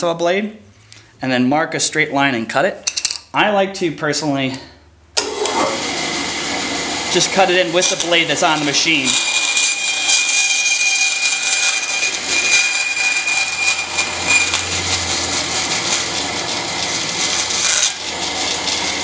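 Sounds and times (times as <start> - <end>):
bandsaw cutting plastic: 5.2 - 19.0.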